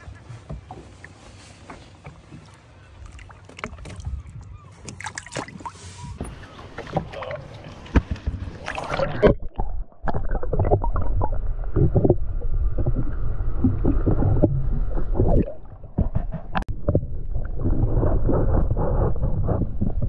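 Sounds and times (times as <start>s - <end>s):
muffled underwater gurgling: 6.1s - 20.0s.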